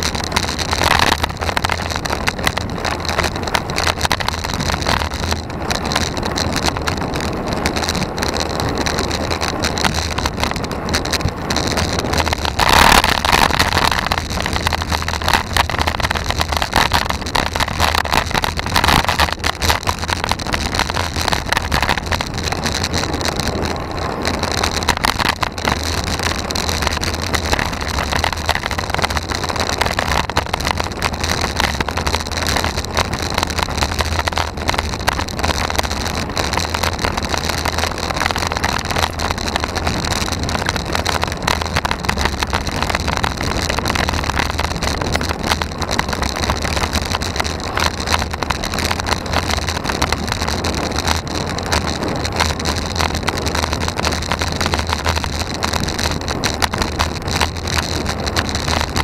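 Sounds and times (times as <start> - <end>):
steady low rumble: 0.0 - 59.0
wind buffeting microphone: 0.0 - 59.0.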